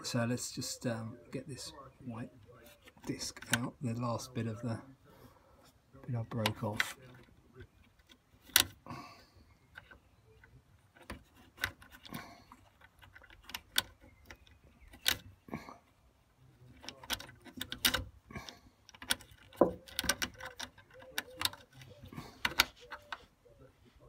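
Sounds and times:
metal key clicking and scraping: 9.7 - 15.3, 16.7 - 18.2, 18.8 - 23.1.

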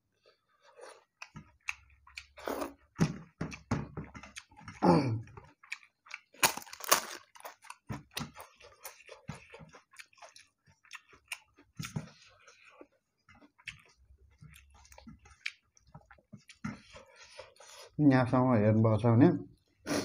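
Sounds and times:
person crunching and chewing: 0.5 - 18.0.

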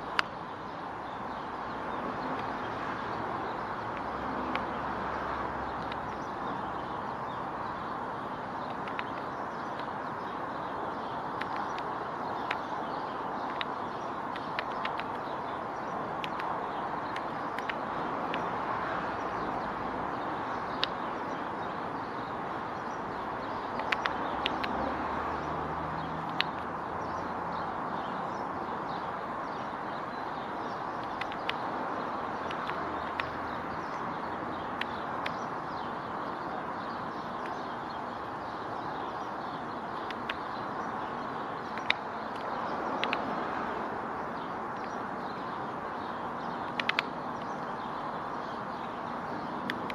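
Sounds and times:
woodpecker tapping on nut: 2.2 - 2.8, 3.8 - 4.8, 5.8 - 6.4, 8.6 - 10.0, 11.3 - 12.8, 13.4 - 18.6, 20.7 - 21.0, 23.6 - 26.8, 30.9 - 34.0, 34.7 - 35.8, 39.9 - 40.8, 41.6 - 43.4, 46.6 - 47.6, 49.6 - 49.9.

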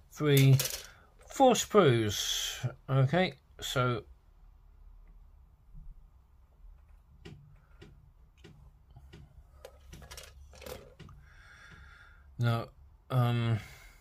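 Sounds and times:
plastic frames clicking and rattling: 0.3 - 1.0, 6.8 - 11.2.

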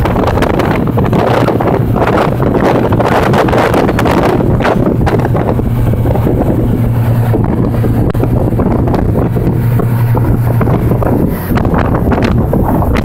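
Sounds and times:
ship engine humming: 0.0 - 13.0
wind buffeting microphone: 0.0 - 13.0.

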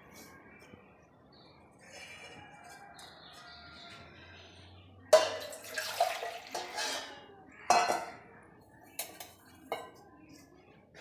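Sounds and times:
metal bowl clinking: 5.1 - 8.2.

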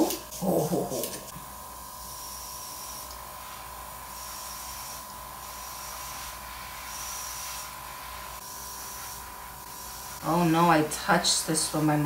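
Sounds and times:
airbrush machine humming: 0.0 - 12.0
airbrush air hiss: 4.1 - 10.4.

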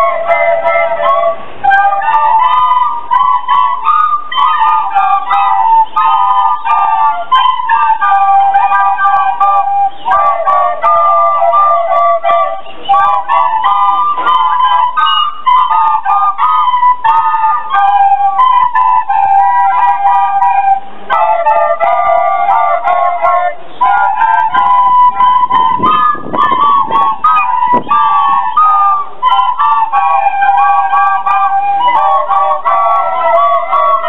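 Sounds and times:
recorders playing melody: 0.0 - 34.0.

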